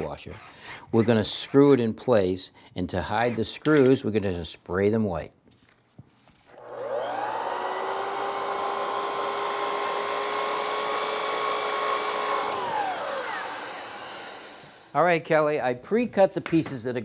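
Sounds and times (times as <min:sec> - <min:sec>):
miter saw cutting trim board: 0:06.5 - 0:14.9.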